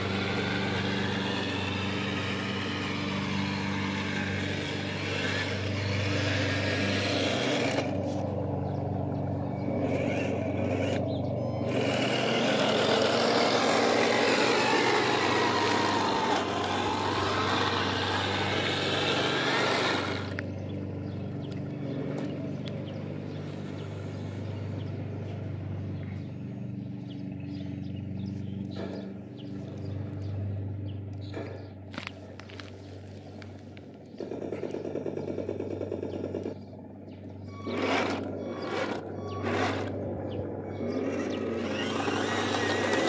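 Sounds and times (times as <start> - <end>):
toy tank motor hum: 0.0 - 8.3, 9.4 - 20.8, 37.3 - 43.0.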